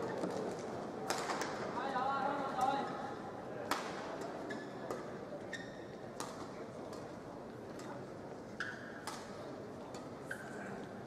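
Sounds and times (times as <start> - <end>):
shoes squeaking on court: 5.5 - 5.9.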